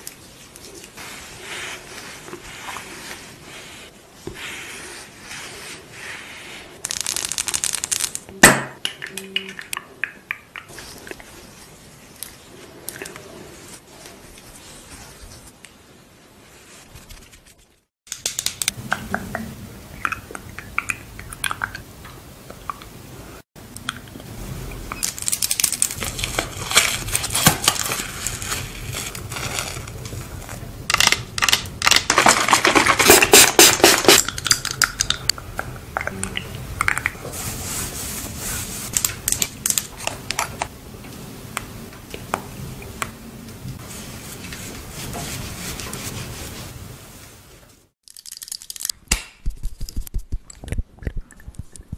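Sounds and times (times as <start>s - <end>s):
hand and brush rustles: 0.0s - 6.8s, 10.7s - 17.9s, 37.2s - 39.2s, 43.8s - 47.9s.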